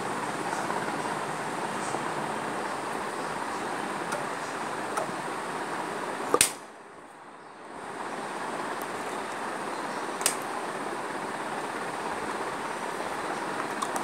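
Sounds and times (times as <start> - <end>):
room background hiss: 0.0 - 14.0
sharp click: 6.3 - 6.6, 10.2 - 10.4.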